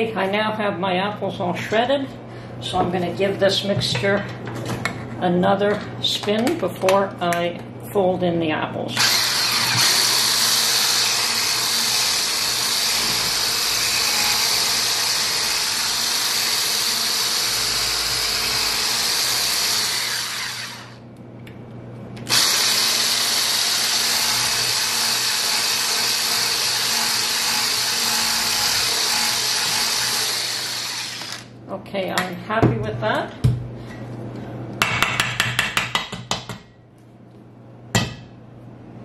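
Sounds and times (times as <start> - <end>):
stick blender whisking: 22.3 - 31.4.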